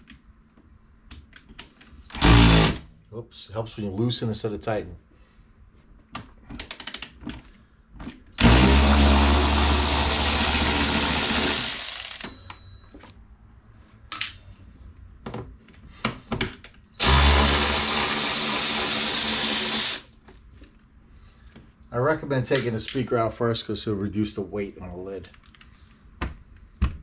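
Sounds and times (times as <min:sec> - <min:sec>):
cordless screwdriver motor whir: 0:08.4 - 0:12.2.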